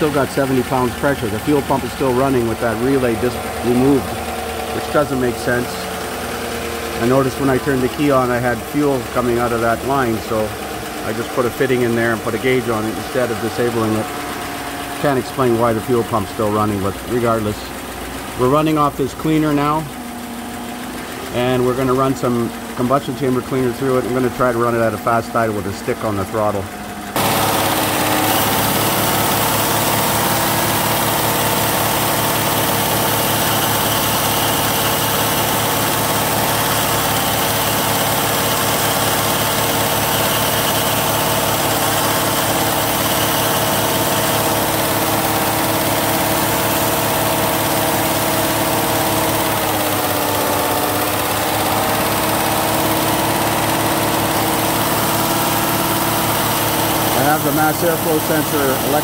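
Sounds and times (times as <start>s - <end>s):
engine fast idle: 0.0s - 59.0s.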